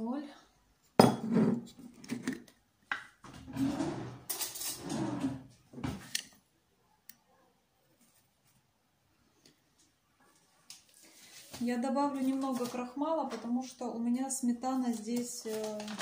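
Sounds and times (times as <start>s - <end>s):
glass jar scraping and rattling: 3.4s - 5.4s.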